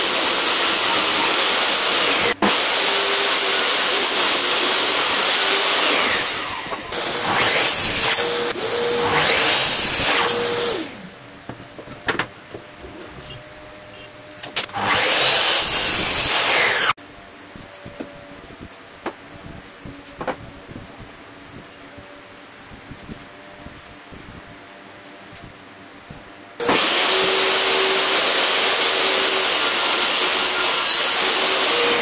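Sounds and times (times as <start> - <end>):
miter saw cutting board: 0.0 - 11.1, 14.6 - 17.0, 26.6 - 32.0
power saw cutting wood: 0.0 - 11.1, 14.7 - 17.0, 26.6 - 32.0.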